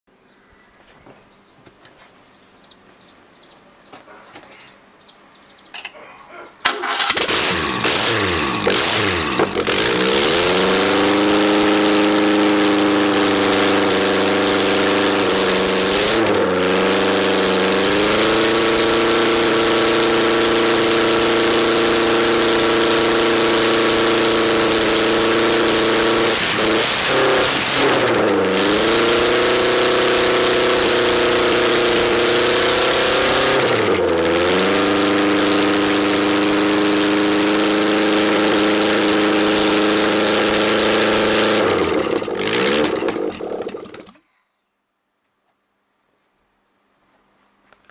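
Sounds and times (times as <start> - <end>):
car engine starting and idling: 6.6 - 44.2.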